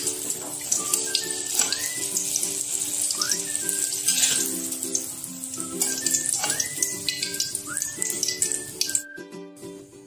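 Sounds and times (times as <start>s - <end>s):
hot oil sizzling in a wok: 0.0s - 9.0s
background music: 0.0s - 10.0s
metal spatula in a wok: 3.9s - 5.1s.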